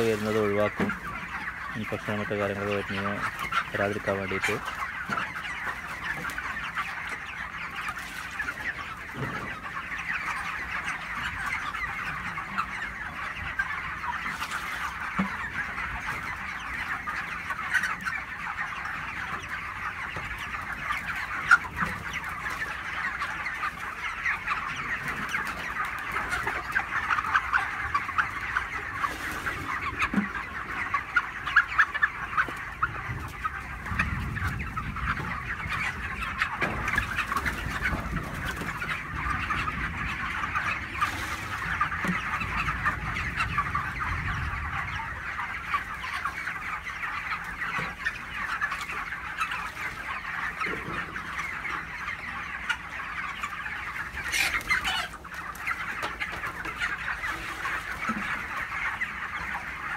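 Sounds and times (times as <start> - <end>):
chickens clucking and peeping: 0.0 - 59.9.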